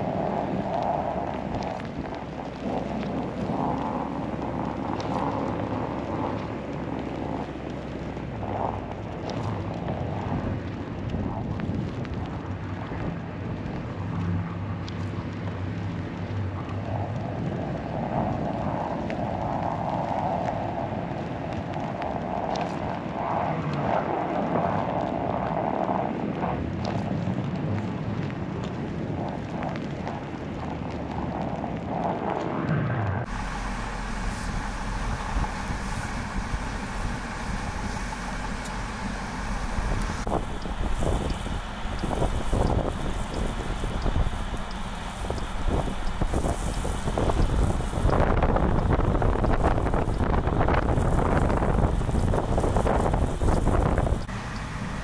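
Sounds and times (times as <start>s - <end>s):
road noise on snow: 0.0s - 55.0s
wind buffeting microphone: 0.0s - 55.0s
car engine hum: 33.3s - 47.1s, 54.3s - 55.0s.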